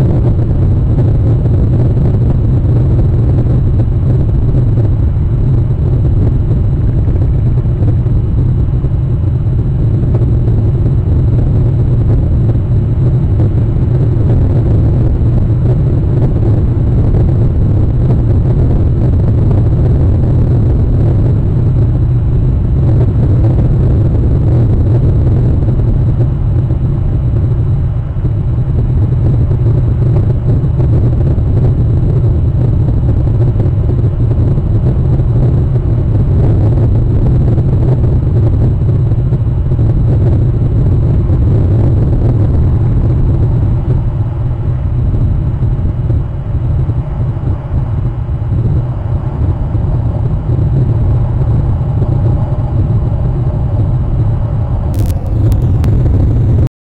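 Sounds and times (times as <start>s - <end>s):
low rumble with hiss: 0.0s - 56.7s
brief click: 55.0s - 56.6s.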